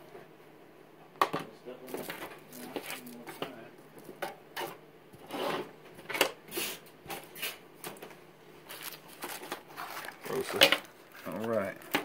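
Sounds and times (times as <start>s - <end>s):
cables rustling: 8.6s - 12.0s.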